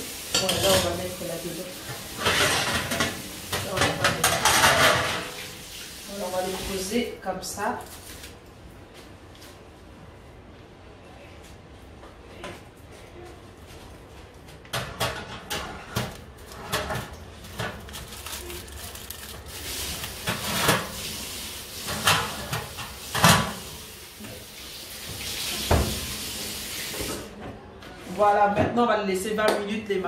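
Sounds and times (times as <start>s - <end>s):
oven racks clattering and scraping: 0.4s - 5.6s, 14.6s - 23.8s.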